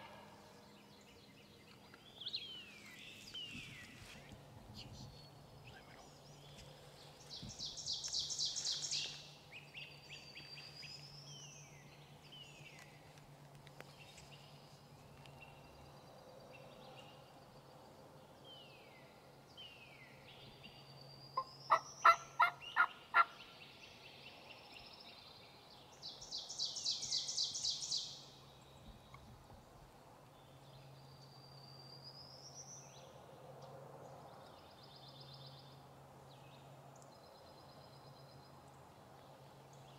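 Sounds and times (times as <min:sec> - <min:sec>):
songbird trills: 0:00.0 - 0:13.0
turkey gobbling: 0:21.7 - 0:23.3.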